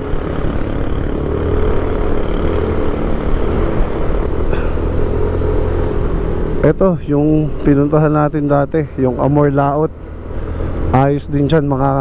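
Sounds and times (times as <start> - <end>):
motorcycle engine running: 0.0 - 6.0.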